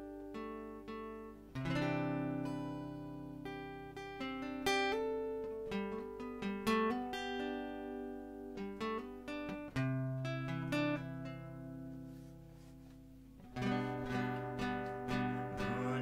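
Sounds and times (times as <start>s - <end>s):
acoustic guitar picked notes: 0.0s - 16.0s
strummed guitar chord: 13.6s - 16.0s.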